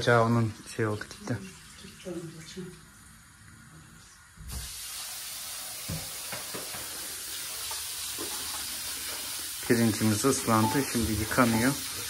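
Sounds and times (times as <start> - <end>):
tap water running into sink: 4.4 - 12.0.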